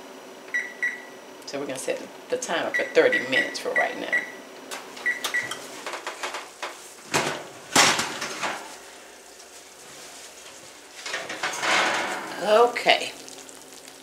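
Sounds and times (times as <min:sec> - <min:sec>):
oven control panel beeping: 0:00.5 - 0:01.1, 0:02.7 - 0:04.4, 0:05.0 - 0:05.7
cookware clattering: 0:11.0 - 0:12.6.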